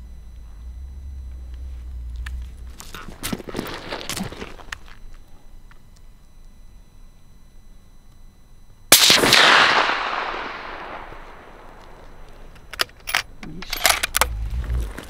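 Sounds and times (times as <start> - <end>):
gunshot: 8.9 - 11.6.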